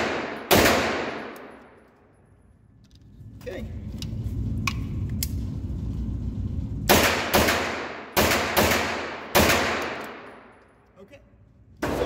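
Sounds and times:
gunshots echoing indoors: 0.0s - 2.7s, 6.3s - 12.0s
low rumble: 2.2s - 8.2s.

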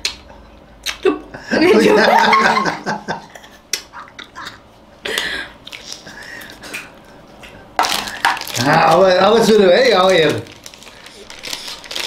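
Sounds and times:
wet mouth smacks: 0.0s - 1.1s.

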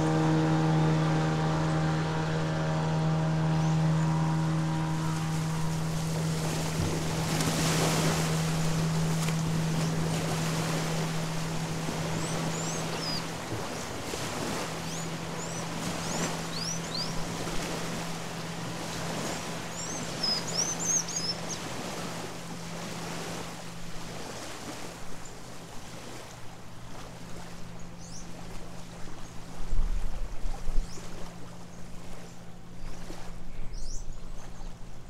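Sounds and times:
distant boat engine droning: 0.0s - 35.0s
wind and water hiss: 0.0s - 35.0s
small birds chirping: 12.0s - 14.0s, 14.7s - 17.4s, 19.3s - 21.7s, 27.7s - 28.5s, 30.8s - 35.0s.

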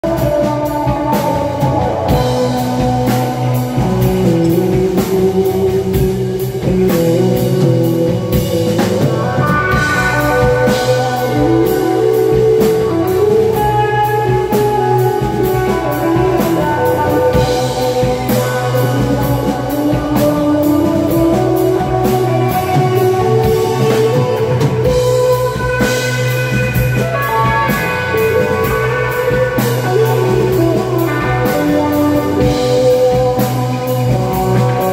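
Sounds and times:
electric guitar sliding notes: 0.0s - 34.9s
live rock band playing: 0.0s - 34.9s.

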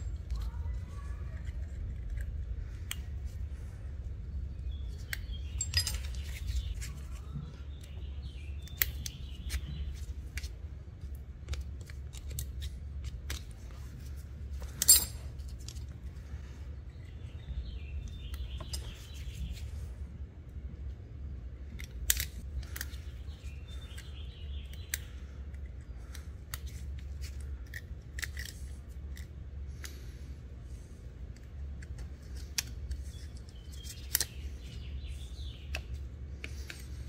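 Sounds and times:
steady low hum: 0.0s - 37.0s
small metal clicks and scrapes: 23.7s - 30.1s.

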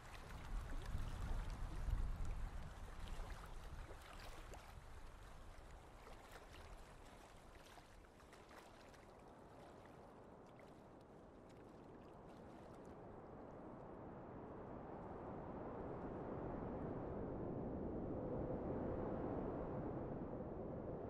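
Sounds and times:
smooth wind noise: 12.0s - 21.0s.

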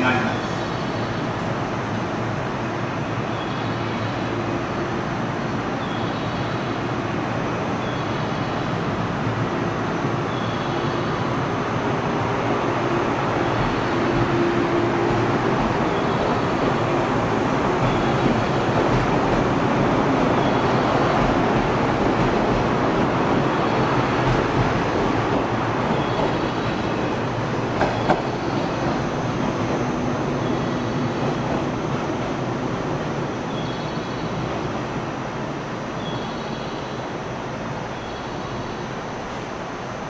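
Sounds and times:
train wheels rumbling: 0.0s - 40.0s
electric train motors humming: 8.5s - 36.0s.

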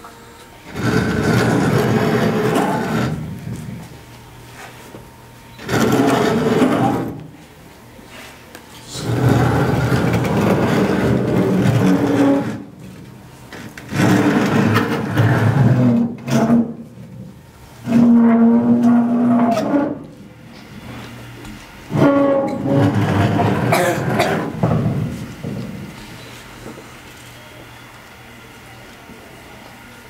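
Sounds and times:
low droning hum: 0.0s - 28.9s
wooden box scraping on concrete: 0.7s - 3.2s, 5.6s - 7.2s, 9.0s - 12.7s, 13.8s - 16.7s, 21.9s - 25.6s.

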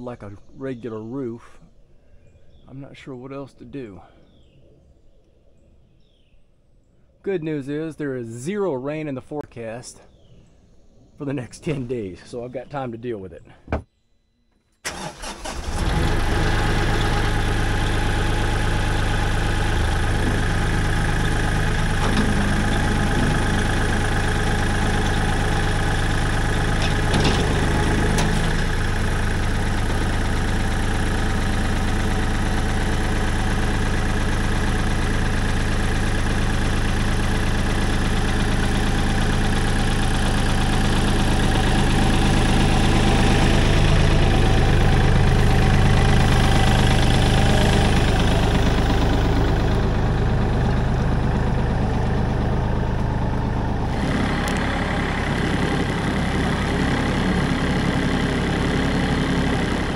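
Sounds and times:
tractor engine running: 14.9s - 59.9s.

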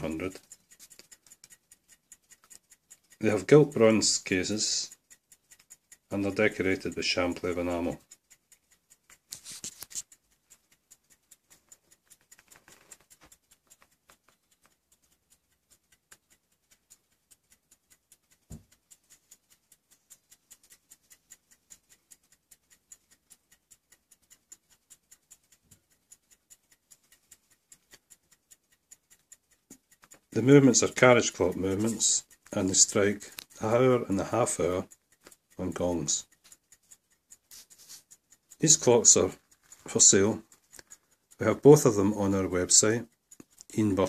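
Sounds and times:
clocks ticking: 0.0s - 44.0s
brief rustle: 9.3s - 10.1s.

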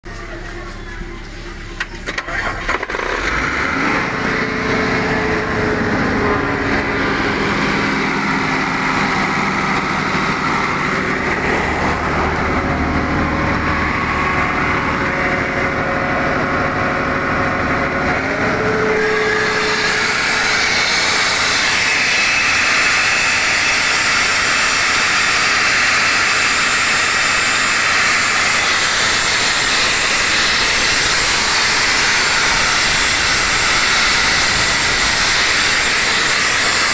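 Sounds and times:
diesel air compressor running: 0.0s - 36.9s
loud rushing hiss of air: 3.2s - 36.9s.

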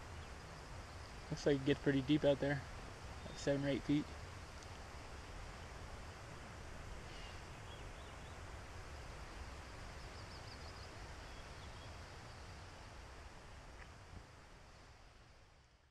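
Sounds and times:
outdoor background hiss: 0.0s - 15.9s
faint high bird chirps: 3.2s - 4.0s, 7.0s - 8.4s, 9.3s - 12.7s.

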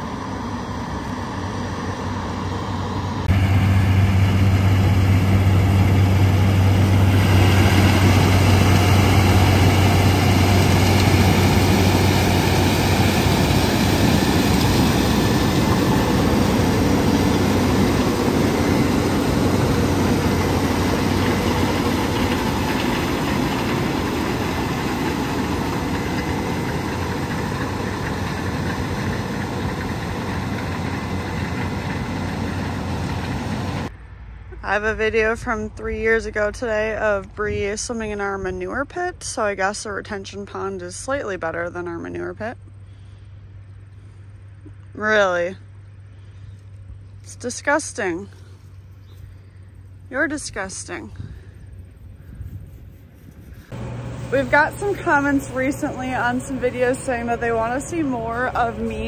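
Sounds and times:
combine harvester engine hum: 0.0s - 59.0s
auger emptying corn into truck: 3.4s - 18.2s.

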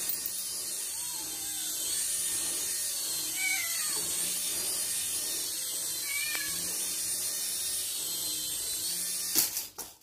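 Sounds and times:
cat meowing: 3.3s - 4.1s, 6.0s - 6.6s.

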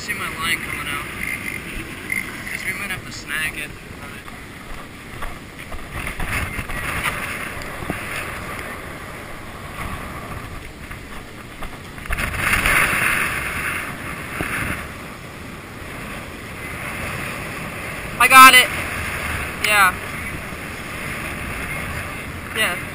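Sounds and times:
water rushing: 0.0s - 22.9s
wind rushing: 0.0s - 22.9s.

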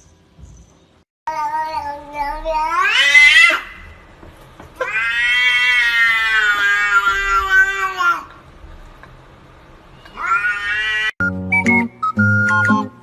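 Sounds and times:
cat meowing: 1.4s - 3.9s, 4.8s - 8.3s, 10.0s - 11.2s.

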